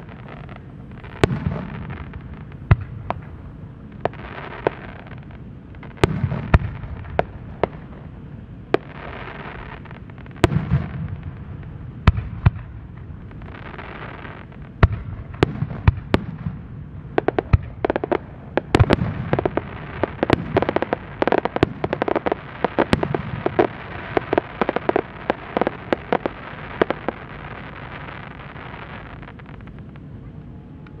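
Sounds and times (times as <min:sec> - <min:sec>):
firework bangs with echo: 0:01.1 - 0:03.4, 0:06.0 - 0:07.9, 0:10.4 - 0:11.3, 0:14.8 - 0:27.2
rapid firework crackling: 0:08.7 - 0:29.9.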